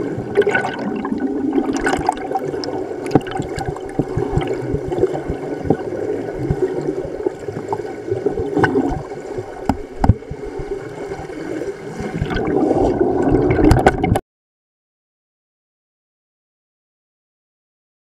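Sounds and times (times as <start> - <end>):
underwater air bubbles gurgling: 0.0 - 14.2.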